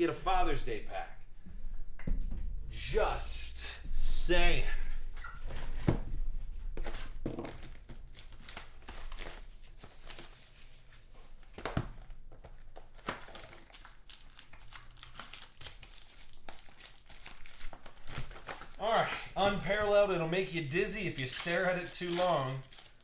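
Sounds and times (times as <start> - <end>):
plastic wrap crinkling and tearing: 6.8 - 23.0.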